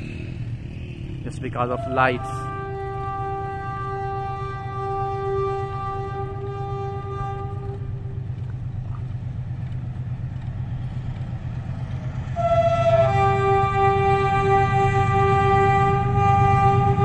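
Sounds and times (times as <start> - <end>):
diesel locomotive rumble: 0.0 - 17.0
locomotive horn chord: 1.6 - 8.6, 12.3 - 17.0.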